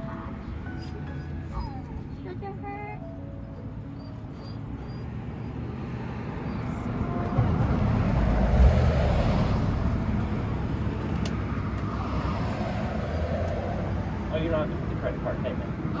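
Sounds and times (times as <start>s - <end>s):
car driving past: 4.7s - 14.5s.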